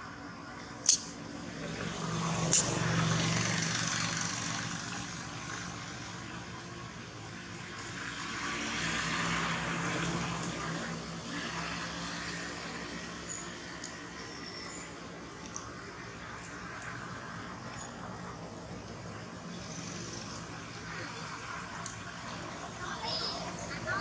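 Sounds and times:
distant engine drone: 0:00.0 - 0:24.0
sharp click: 0:00.8 - 0:01.2, 0:02.5 - 0:02.7.

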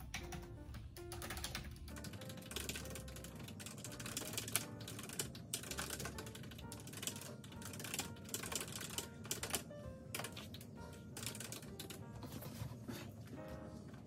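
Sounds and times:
soft background music: 0:00.0 - 0:14.0.

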